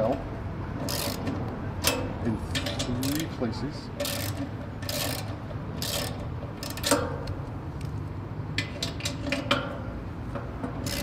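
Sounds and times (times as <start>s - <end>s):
spanner ratcheting on metal: 0.8s - 3.4s, 4.0s - 7.4s, 10.7s - 11.0s.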